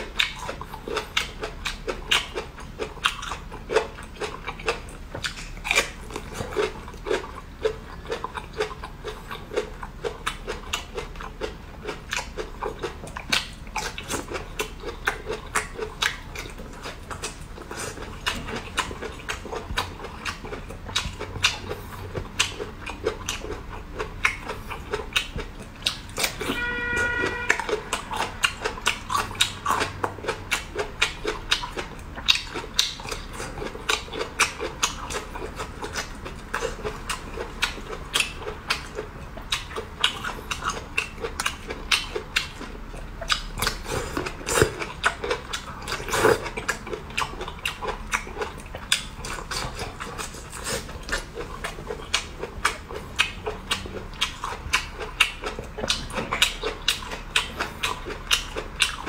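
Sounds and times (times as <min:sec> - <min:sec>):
person chewing crunchy food: 0:00.0 - 0:59.0.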